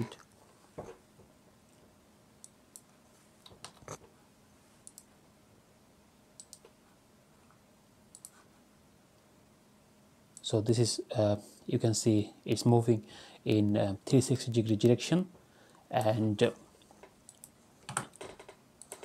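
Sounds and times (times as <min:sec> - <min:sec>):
computer mouse clicks: 0:04.8 - 0:05.1, 0:06.4 - 0:06.8, 0:08.1 - 0:08.4, 0:17.3 - 0:19.0.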